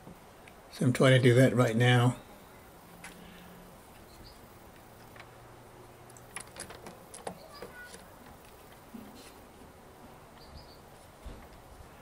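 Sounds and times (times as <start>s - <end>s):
chainsaw chain metallic clicks: 6.1s - 8.6s.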